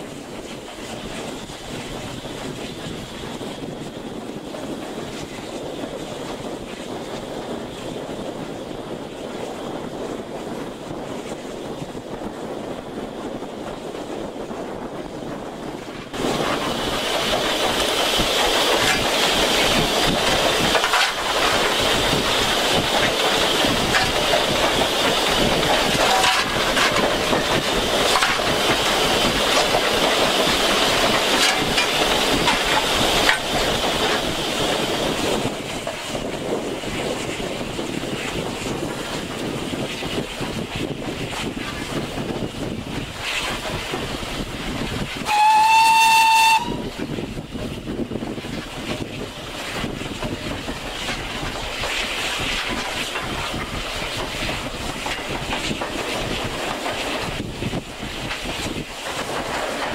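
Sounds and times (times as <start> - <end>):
wind rushing: 0.0 - 59.9
locomotive cab noise: 9.8 - 59.9
wheels clattering over rails: 12.8 - 59.9
steam hissing: 15.6 - 59.9.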